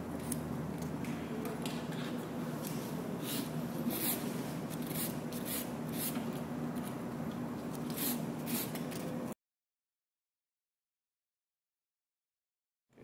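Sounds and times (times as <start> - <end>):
low room hum: 0.0 - 9.4.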